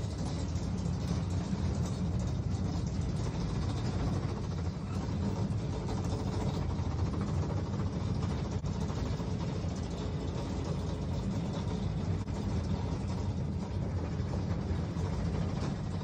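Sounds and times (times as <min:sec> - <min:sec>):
monorail drive low rumble: 0:00.0 - 0:16.0.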